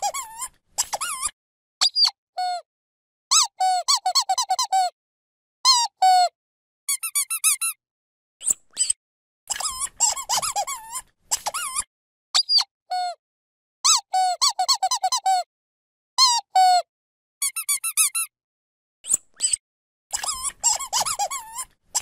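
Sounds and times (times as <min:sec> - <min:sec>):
squeaky toy squeaking: 0:00.0 - 0:02.6, 0:03.3 - 0:04.9, 0:05.7 - 0:06.3, 0:06.9 - 0:07.8, 0:08.4 - 0:13.2, 0:13.8 - 0:15.5, 0:16.2 - 0:16.8, 0:17.4 - 0:18.3, 0:19.1 - 0:22.0.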